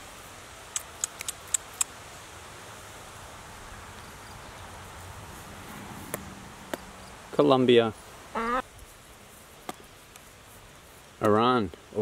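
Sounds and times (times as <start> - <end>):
outdoor background hiss: 0.0 - 12.0
sharp short clicks: 0.7 - 1.9.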